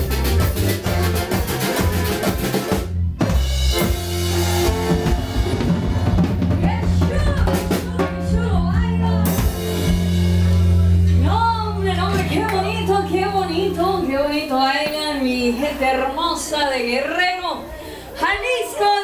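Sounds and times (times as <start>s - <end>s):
drum hits and fills: 0.0s - 12.5s
latin dance band playing: 0.0s - 17.4s.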